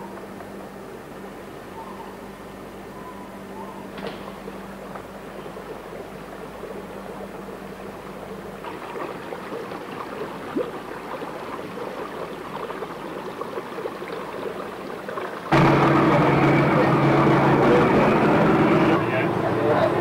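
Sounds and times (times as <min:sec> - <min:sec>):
faint hum: 0:00.0 - 0:20.0
outdoor rushing noise: 0:15.5 - 0:20.0.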